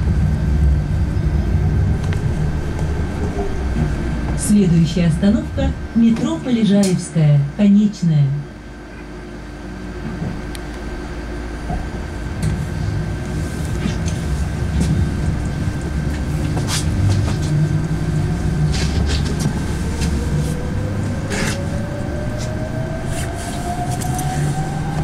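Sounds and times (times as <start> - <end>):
steady road rumble: 0.0 - 6.9, 8.6 - 25.0
electric motor whine rising: 17.5 - 25.0.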